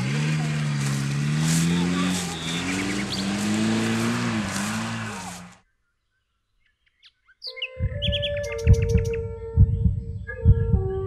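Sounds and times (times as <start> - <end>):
car engine running: 0.0 - 5.6.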